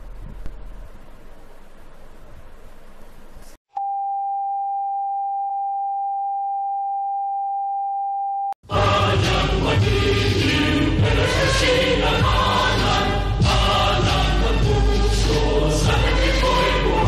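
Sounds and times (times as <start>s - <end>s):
choral music: 8.6s - 17.0s.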